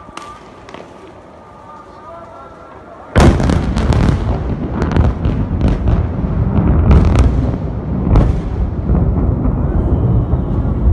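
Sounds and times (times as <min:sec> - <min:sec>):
thunder rumbling and cracking: 0:03.2 - 0:10.9.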